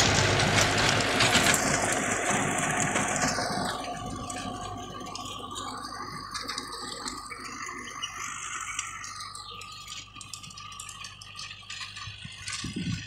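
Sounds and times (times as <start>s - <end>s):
faint low engine hum: 0.0s - 13.0s
rotavator rattling clatter: 0.0s - 13.0s.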